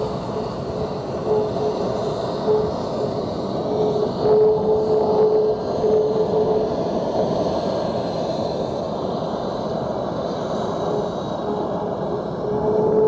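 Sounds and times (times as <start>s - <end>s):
jet engines rushing: 0.0s - 13.0s
steady tone: 10.7s - 13.0s.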